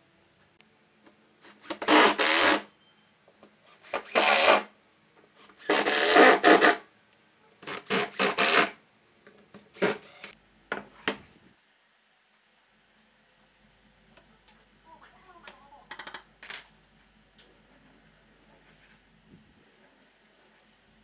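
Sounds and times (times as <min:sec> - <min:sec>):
hand tool scraping wood: 0:01.5 - 0:02.7, 0:03.7 - 0:04.7, 0:05.4 - 0:06.8, 0:07.6 - 0:08.8, 0:09.8 - 0:10.3.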